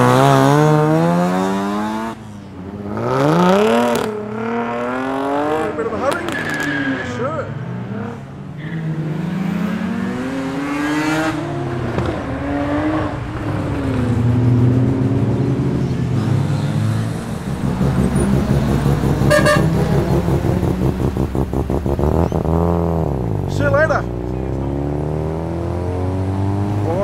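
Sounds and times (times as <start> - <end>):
car engines revving: 0.0 - 27.0
choppy engine rumble: 13.1 - 24.8.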